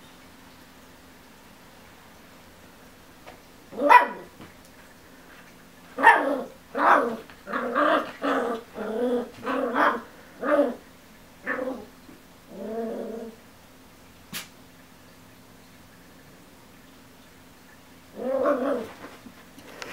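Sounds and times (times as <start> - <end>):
puppy barking: 3.8 - 4.3, 6.0 - 8.5, 9.4 - 10.7.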